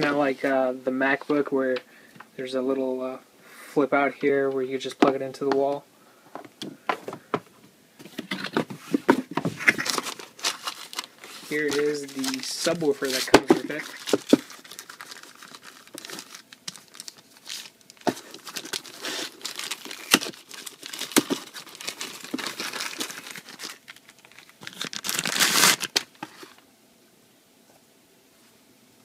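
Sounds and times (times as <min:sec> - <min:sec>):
plastic wrapping crinkling: 0:09.4 - 0:26.6.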